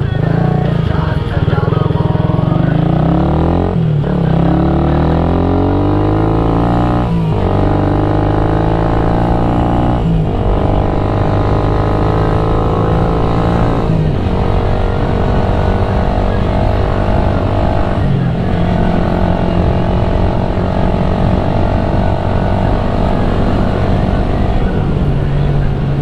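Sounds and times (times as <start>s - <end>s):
motorcycle accelerating through gears: 0.0s - 26.0s.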